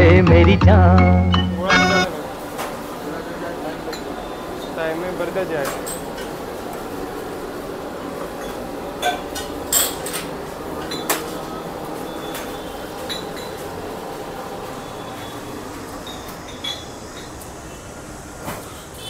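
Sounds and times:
steady background din: 0:00.0 - 0:18.6.

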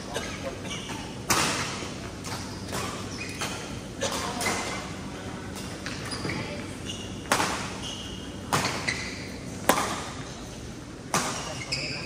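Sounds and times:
shoes squeaking on court: 0:00.0 - 0:10.6, 0:11.2 - 0:12.0
racket hitting shuttlecock: 0:00.9 - 0:04.8, 0:07.2 - 0:07.8, 0:08.4 - 0:09.0, 0:09.6 - 0:10.3, 0:11.1 - 0:11.5.

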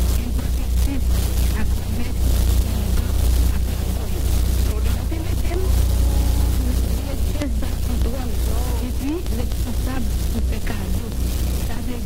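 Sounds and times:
people calling out: 0:04.9 - 0:07.5.

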